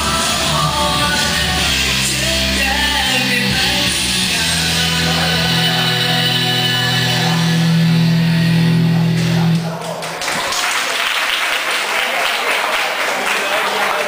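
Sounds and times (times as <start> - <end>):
rock music with guitar: 0.0 - 9.6
audience chatter: 0.0 - 14.0
audience applause: 9.0 - 14.0.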